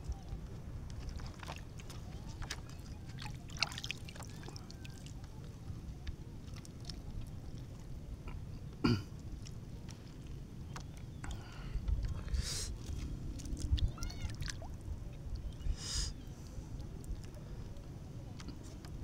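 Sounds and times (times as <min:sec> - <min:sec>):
low rumble of wind and water: 0:00.0 - 0:19.0
person clearing throat: 0:08.8 - 0:09.1.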